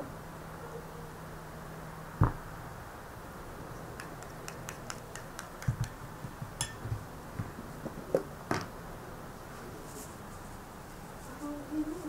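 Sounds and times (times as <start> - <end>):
spoon knocking on bowl: 6.6 - 7.0.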